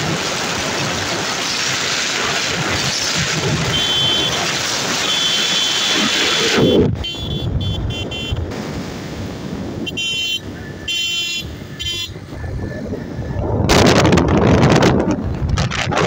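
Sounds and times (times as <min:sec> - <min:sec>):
wind rushing on microphone: 0:00.0 - 0:05.0, 0:05.9 - 0:16.0
motorcycle engine and road noise: 0:00.0 - 0:16.0
horn beeping: 0:03.7 - 0:08.5, 0:09.8 - 0:12.2.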